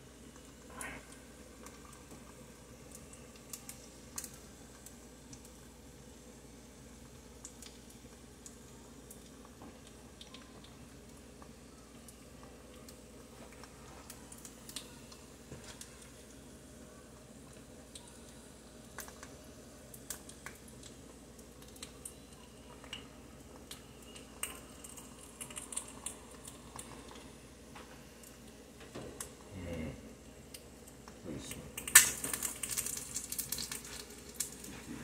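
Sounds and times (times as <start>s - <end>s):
meat sizzling in a pan: 30.4s - 35.0s.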